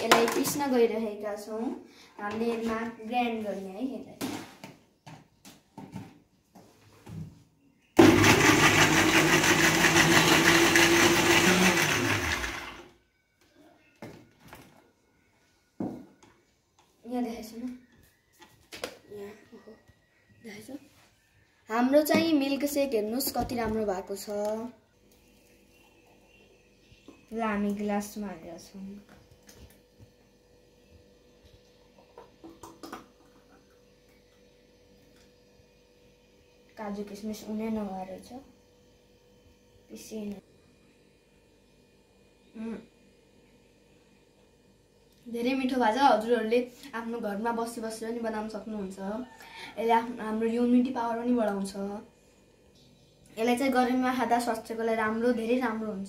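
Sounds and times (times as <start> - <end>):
blender running: 8.0 - 13.0.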